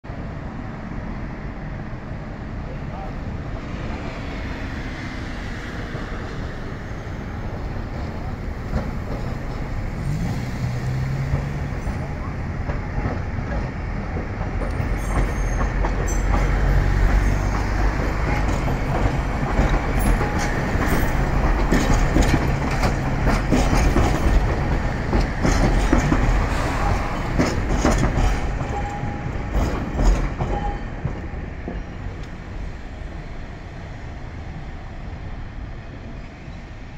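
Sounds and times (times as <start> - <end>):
tram rumbling past: 0.1 - 36.9
wheels clacking over track: 7.9 - 32.4.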